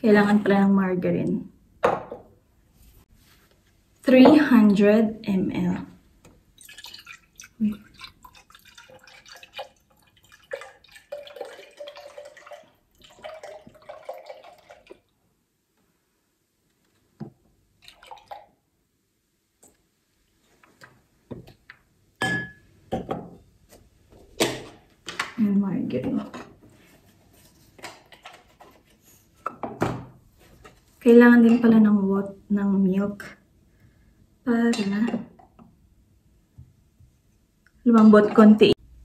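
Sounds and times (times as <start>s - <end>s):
milk glugging into a jug: 6.6s - 15.1s, 17.8s - 18.6s.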